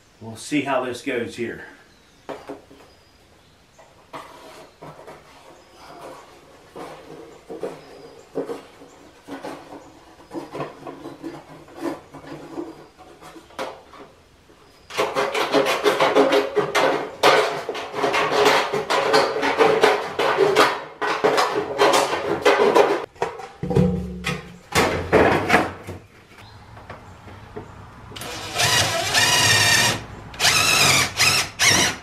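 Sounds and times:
hand tools scraping metal sheet: 0:04.1 - 0:14.2, 0:14.9 - 0:23.1.

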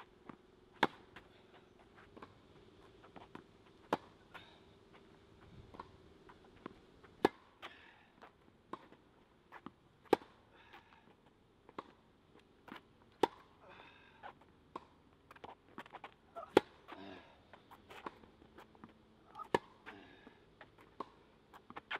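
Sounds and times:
tennis ball bounces: 0:00.0 - 0:13.6, 0:14.2 - 0:21.9
racket hitting tennis ball: 0:00.2 - 0:10.8, 0:11.7 - 0:12.0, 0:12.6 - 0:13.5, 0:14.7 - 0:17.0, 0:17.6 - 0:19.9, 0:20.7 - 0:21.9.

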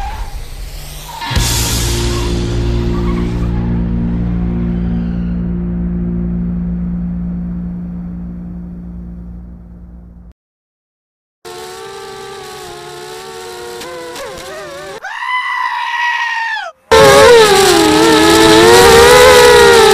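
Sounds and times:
quadcopter motors whining: 0:11.5 - 0:15.7, 0:16.9 - 0:19.9.

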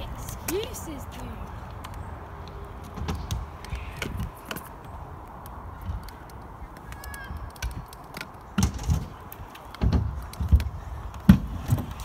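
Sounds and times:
scooter wheels rolling and knocking: 0:00.0 - 0:12.0.

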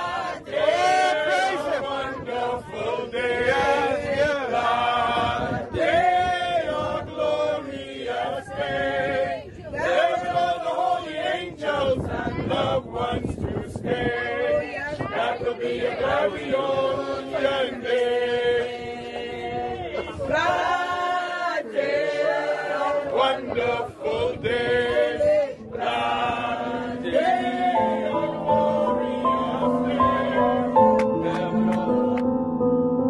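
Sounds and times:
group singing a hymn: 0:00.0 - 0:32.3
instrumental music: 0:25.6 - 0:33.0.

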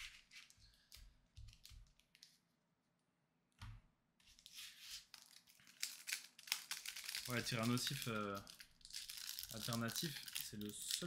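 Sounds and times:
foil wrapper crinkling: 0:05.0 - 0:11.0.

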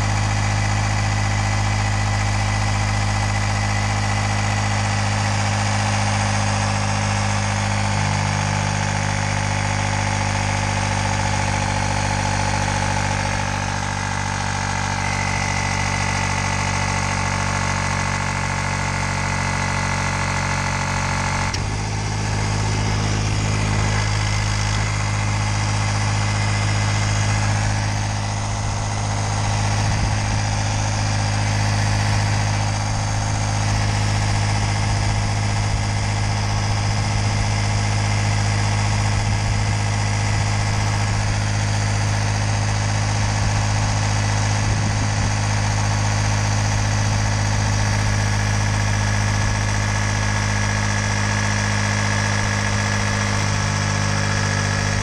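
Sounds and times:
electric inflation pump running: 0:12.2 - 0:55.0.

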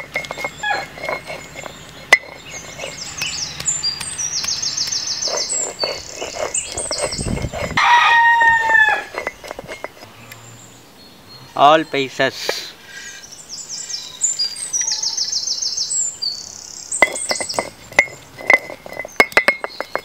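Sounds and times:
stone roller grinding on stone: 0:00.0 - 0:10.1, 0:16.9 - 0:20.0
small birds chirping: 0:00.0 - 0:20.0
rooster crowing: 0:00.6 - 0:00.9, 0:07.8 - 0:09.2.

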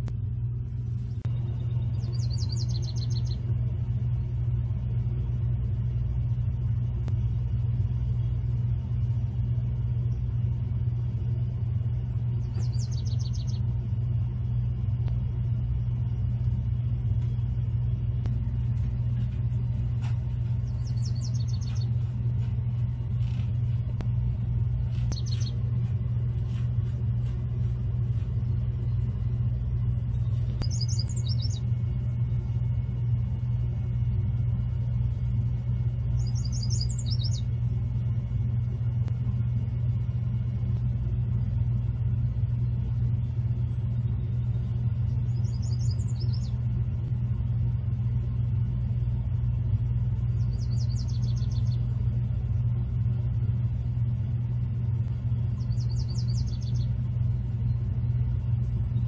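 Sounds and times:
steady low rumble: 0:00.0 - 0:59.0
songbird singing trilled phrases: 0:01.3 - 0:03.5, 0:12.4 - 0:13.7, 0:20.6 - 0:22.0, 0:25.0 - 0:25.6, 0:30.1 - 0:31.7, 0:36.1 - 0:37.5, 0:44.1 - 0:46.6, 0:50.3 - 0:51.9, 0:55.5 - 0:57.0.

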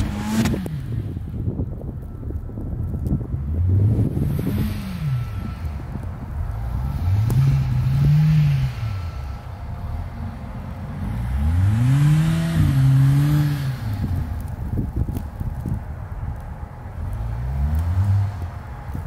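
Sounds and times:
car engine accelerating: 0:00.0 - 0:01.3, 0:03.0 - 0:14.7
wind on microphone: 0:00.0 - 0:08.9, 0:11.3 - 0:19.0.

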